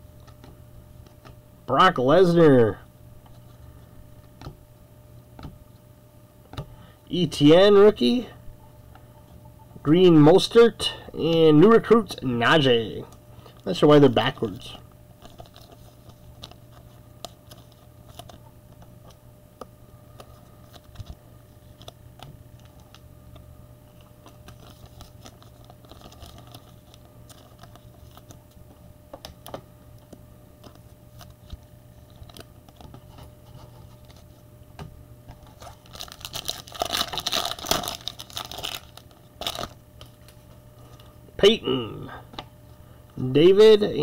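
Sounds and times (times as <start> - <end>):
cards and plastic sleeves rustling: 10.0 - 19.2, 20.1 - 34.5, 35.2 - 41.2
foil wrapper crinkling torn open: 24.2 - 28.4, 35.4 - 40.4.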